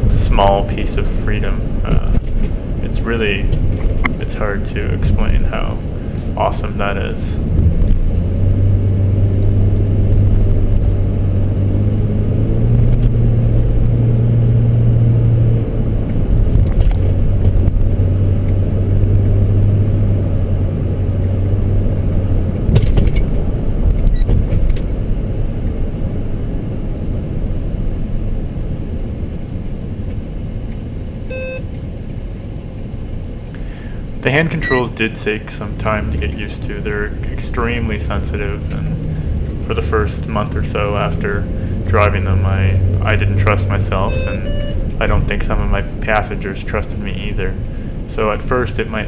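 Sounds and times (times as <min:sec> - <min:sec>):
car engine hum: 0:00.0 - 0:49.0
road noise: 0:00.0 - 0:49.0
short beep: 0:31.3 - 0:31.7, 0:34.6 - 0:34.9, 0:44.1 - 0:44.9.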